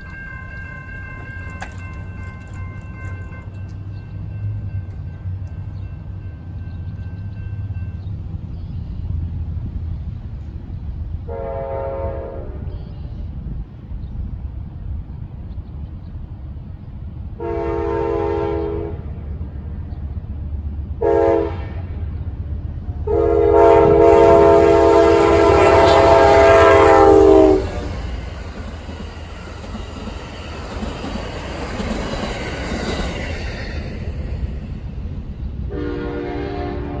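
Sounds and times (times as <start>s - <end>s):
train running on rails: 0.0s - 37.0s
locomotive air horn blasts: 11.3s - 12.7s, 17.4s - 19.1s, 21.0s - 22.0s, 23.0s - 28.1s, 35.7s - 37.0s.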